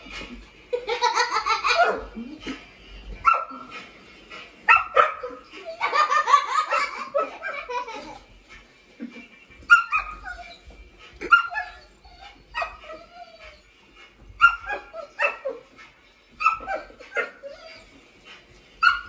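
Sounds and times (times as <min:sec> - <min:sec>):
dog barking: 0:01.8 - 0:02.1, 0:03.2 - 0:03.7, 0:04.7 - 0:05.4, 0:12.5 - 0:12.9, 0:14.4 - 0:15.6, 0:16.4 - 0:17.4, 0:18.8 - 0:19.0.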